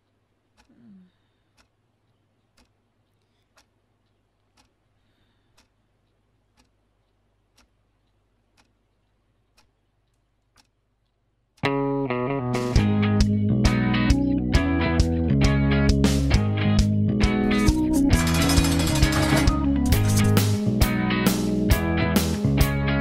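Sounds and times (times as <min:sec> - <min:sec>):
clock ticking faintly: 0:00.0 - 0:11.8, 0:17.4 - 0:20.4.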